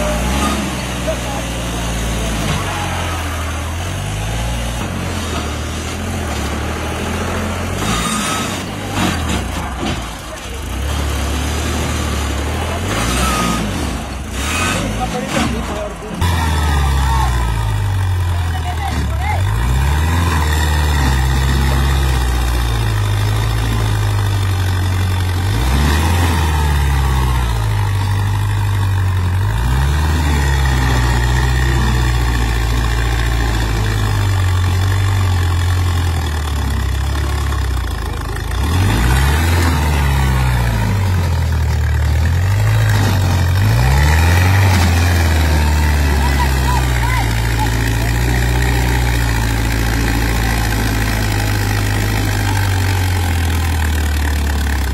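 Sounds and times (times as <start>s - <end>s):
tractor diesel engine under load: 0.0s - 54.9s.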